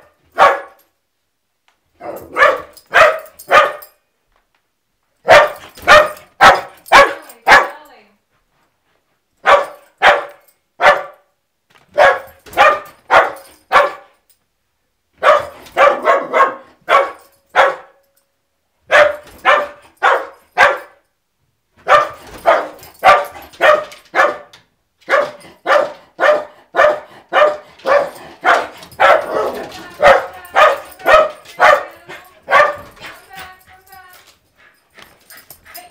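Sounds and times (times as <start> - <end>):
small dog barking: 0.0 - 0.8, 2.0 - 4.0, 5.2 - 7.8, 9.4 - 11.3, 12.0 - 14.1, 15.2 - 18.0, 18.9 - 21.0, 21.8 - 32.9.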